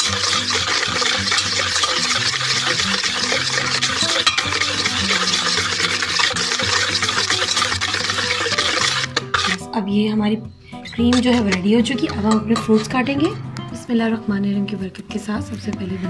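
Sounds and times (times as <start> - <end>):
whisk scraping a metal bowl: 0.0 - 9.8, 10.8 - 13.4.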